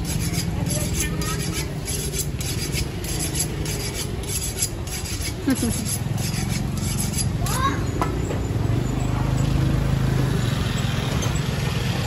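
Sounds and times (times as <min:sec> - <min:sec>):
knife rasping across raw meat: 0:00.0 - 0:07.6
market background hum: 0:00.0 - 0:12.0.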